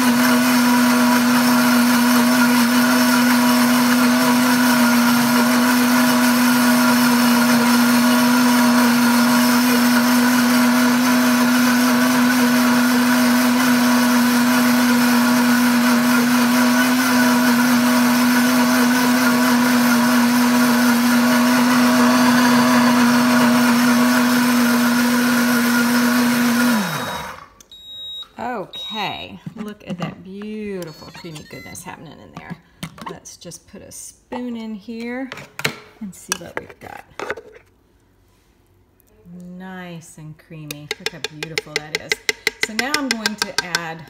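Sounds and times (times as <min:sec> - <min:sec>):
blender motor grinding: 0:00.0 - 0:27.5.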